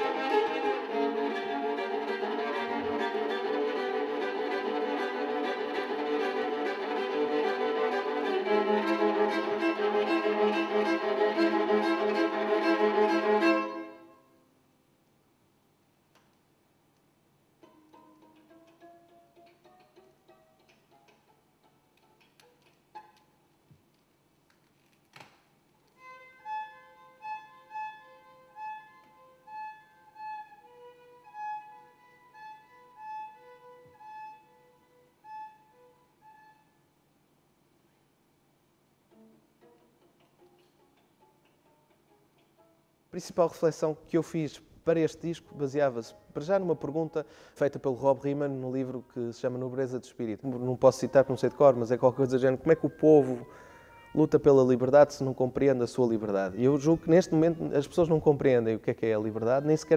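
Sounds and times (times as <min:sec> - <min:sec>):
bowed viola repeated strokes: 0:00.0 - 0:14.1
solo viola playing: 0:00.0 - 0:14.3, 0:26.0 - 0:36.8, 0:51.1 - 0:54.8.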